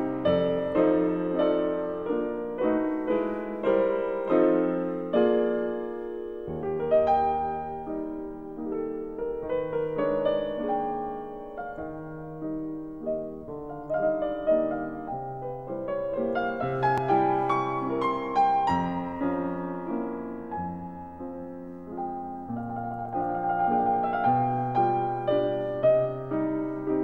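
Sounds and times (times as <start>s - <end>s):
solo piano music: 0.0s - 27.0s.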